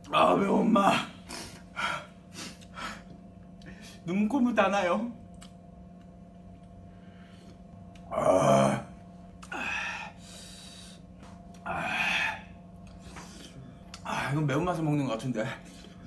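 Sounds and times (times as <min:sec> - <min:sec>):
man groaning: 0:00.2 - 0:02.0, 0:08.0 - 0:10.2, 0:11.6 - 0:12.5.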